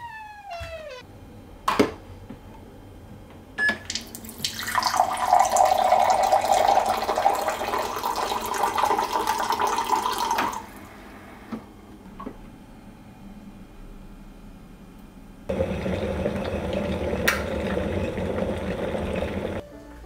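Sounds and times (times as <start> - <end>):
water pouring into glass over ice: 4.0 - 10.6, 15.5 - 19.6.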